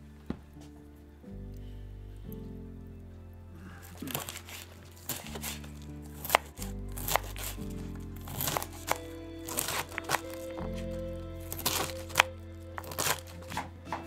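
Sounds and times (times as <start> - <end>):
background music with held chords: 0.0 - 14.0
knife cutting on wooden board: 4.1 - 7.6, 8.3 - 10.4.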